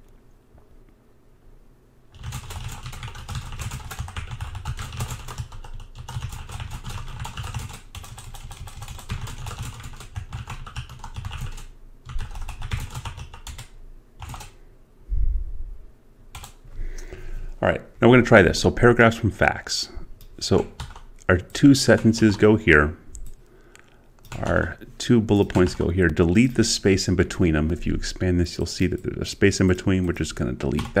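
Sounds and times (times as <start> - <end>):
fast typing on a keyboard: 2.1 - 14.6, 16.3 - 16.6, 20.5 - 21.1, 24.2 - 24.5, 25.4 - 25.9, 30.1 - 31.0.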